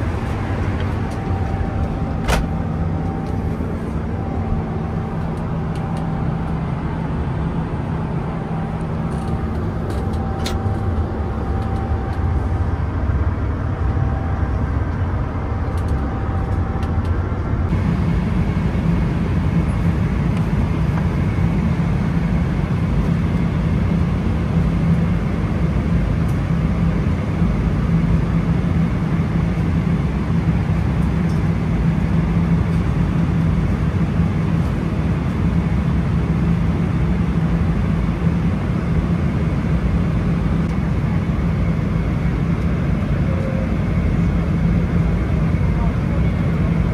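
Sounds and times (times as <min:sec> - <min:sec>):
jet engine rumble in cabin: 0:00.0 - 0:46.9.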